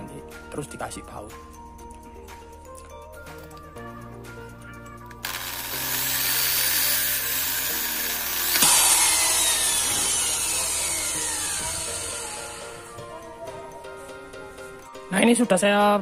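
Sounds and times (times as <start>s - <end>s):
electric drill boring: 5.2s - 13.3s.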